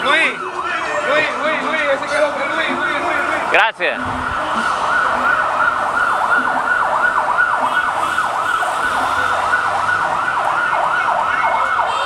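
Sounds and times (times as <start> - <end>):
siren yelping: 0.0 - 12.0.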